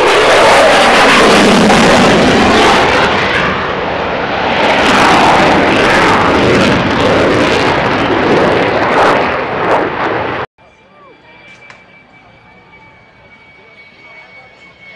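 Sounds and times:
jet engine roaring: 0.0 - 14.9.

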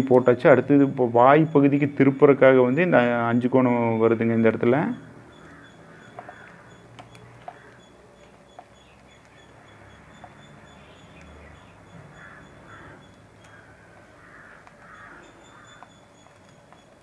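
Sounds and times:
sharp ticks: 4.5 - 17.0.

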